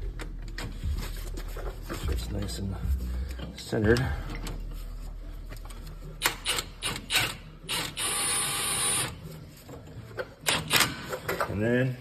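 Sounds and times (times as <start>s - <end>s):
impact wrench whining: 6.2s - 9.2s.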